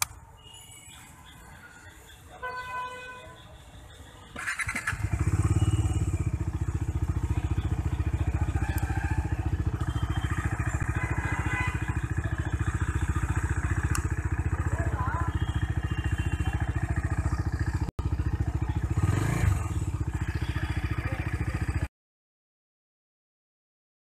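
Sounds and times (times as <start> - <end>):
motorcycle engine starting and idling: 3.8 - 21.9.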